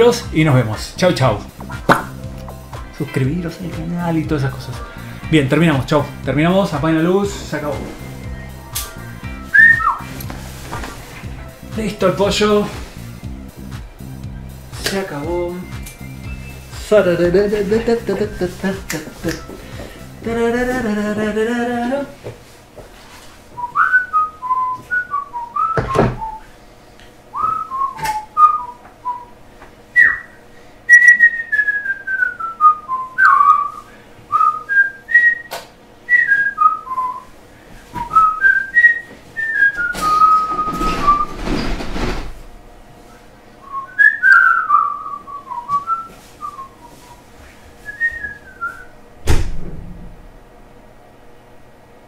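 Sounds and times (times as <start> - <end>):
person whistling a tune: 8.2 - 10.2, 15.6 - 18.1, 23.6 - 26.5, 27.3 - 29.4, 30.0 - 37.3, 38.0 - 41.4, 43.6 - 48.9
rustling noise: 10.1 - 11.3, 22.2 - 23.7, 45.8 - 48.9.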